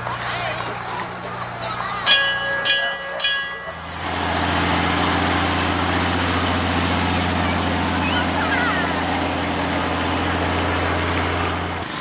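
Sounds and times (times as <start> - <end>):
vehicle engine running: 0.0 - 12.0
ringing clangs: 2.0 - 4.0.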